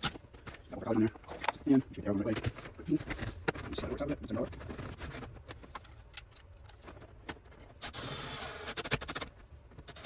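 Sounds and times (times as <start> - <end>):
cordless drill running: 7.8 - 9.2.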